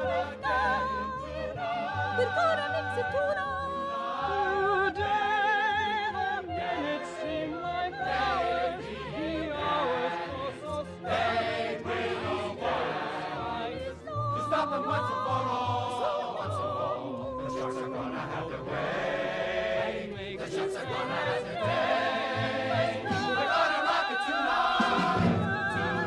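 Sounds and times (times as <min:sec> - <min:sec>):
male chorus singing: 0:00.0 - 0:03.0, 0:03.7 - 0:26.0
orchestral show music: 0:00.0 - 0:26.0
male soloist singing with vibrato: 0:14.1 - 0:19.2, 0:20.0 - 0:26.0.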